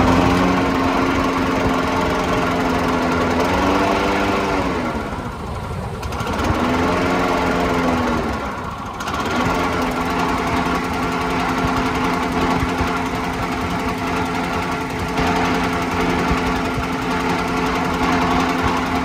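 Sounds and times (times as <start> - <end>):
push mower engine running: 0.0 - 19.0.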